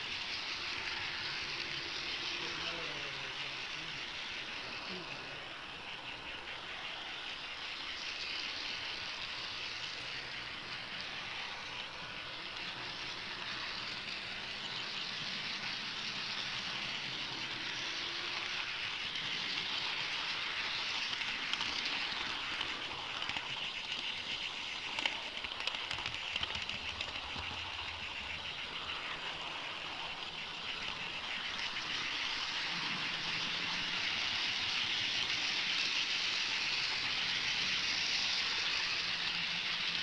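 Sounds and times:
model train wheels on rails: 0.0 - 40.0
sharp clicks: 24.8 - 27.8.

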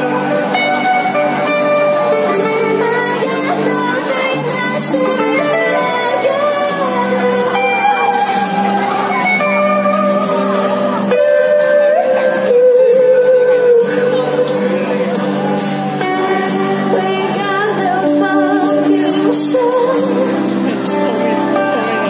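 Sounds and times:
drums: 0.0 - 22.0
electric guitar: 0.0 - 22.0
strummed acoustic guitar: 0.0 - 22.0
woman singing: 2.4 - 9.5, 11.0 - 14.9, 16.0 - 20.9.

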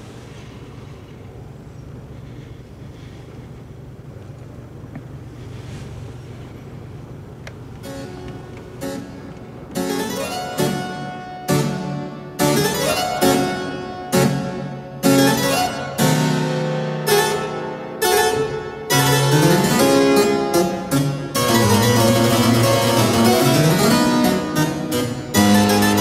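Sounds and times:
harpsichord music: 7.8 - 26.0.

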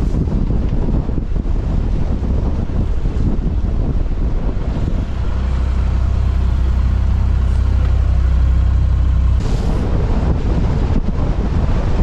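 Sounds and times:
motor running with low drone: 2.8 - 11.0
short rushing noise: 4.6 - 10.4.

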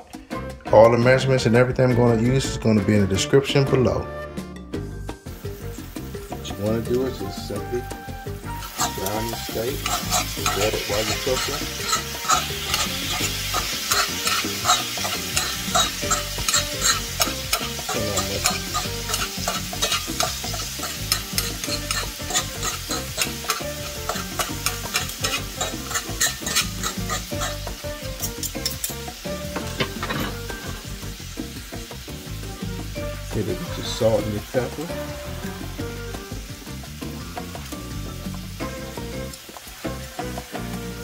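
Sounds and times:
beef sizzling in a skillet: 4.8 - 41.0
knife chopping and scraping in pan: 8.6 - 30.9.

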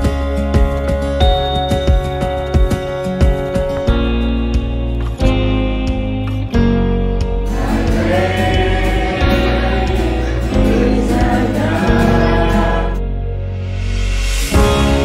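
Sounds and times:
strummed guitar: 0.0 - 13.4, 14.5 - 15.0
group singing worship song: 7.5 - 13.1, 14.5 - 15.0.

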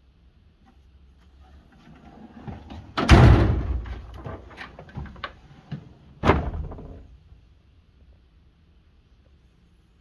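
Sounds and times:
metal drawer banging shut: 2.6 - 4.2, 6.2 - 7.1.

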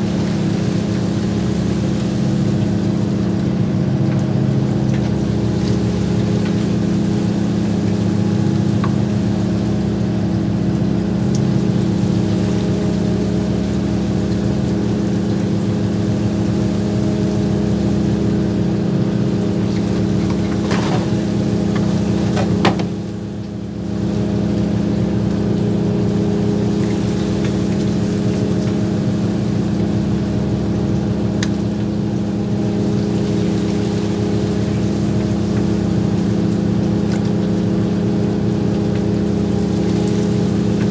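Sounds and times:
boat engine droning: 0.0 - 40.9
sharp knocks: 22.3 - 23.0.

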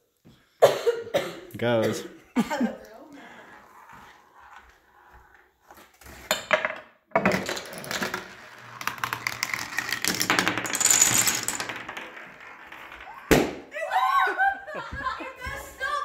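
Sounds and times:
small balls rolling on tracks: 3.3 - 13.4
wooden blocks toppling: 6.2 - 13.7.

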